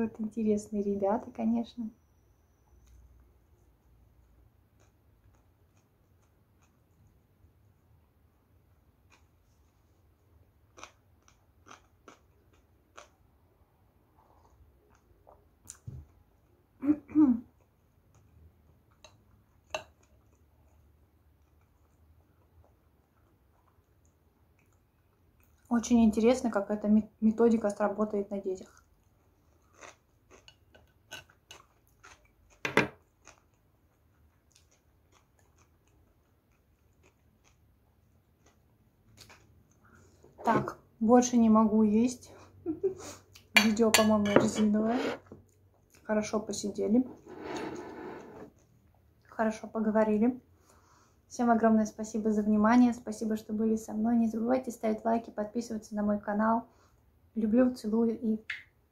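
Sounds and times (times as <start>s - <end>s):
person chewing: 10.7s - 13.2s, 28.8s - 40.0s
person sipping soup: 47.1s - 48.6s.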